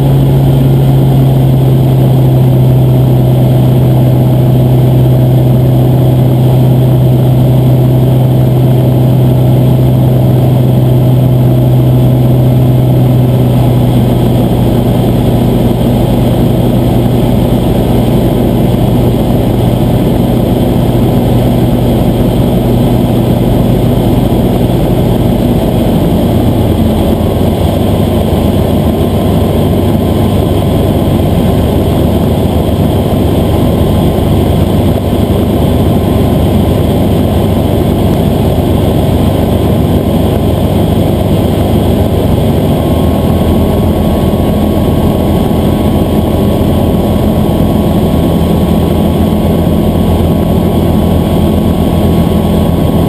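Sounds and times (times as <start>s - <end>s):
aircraft engine droning: 0.0s - 53.0s.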